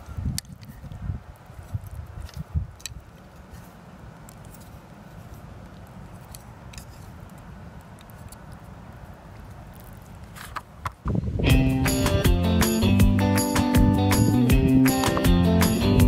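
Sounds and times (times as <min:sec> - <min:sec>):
low background noise: 0:00.0 - 0:11.5.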